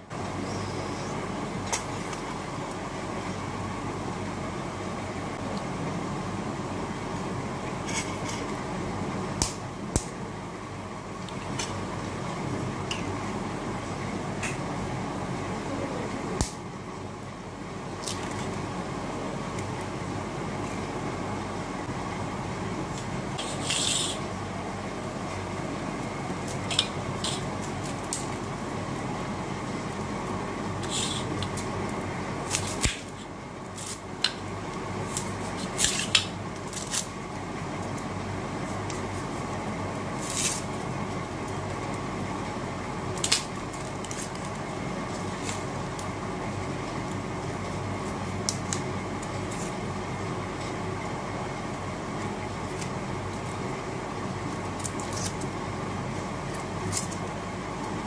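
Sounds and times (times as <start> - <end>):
onion skin crackling: 25.8 - 42.2, 51.7 - 58.0.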